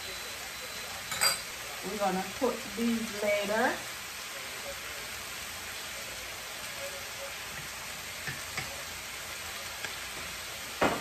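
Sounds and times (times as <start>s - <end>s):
chicken and onions sizzling: 0.0s - 11.0s.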